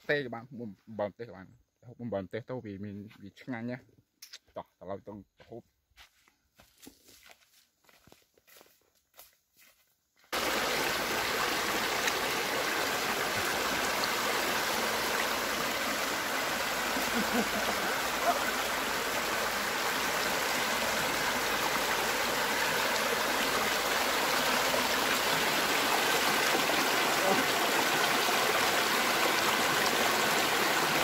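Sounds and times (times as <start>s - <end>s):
river rushing over rocks: 10.4s - 31.0s.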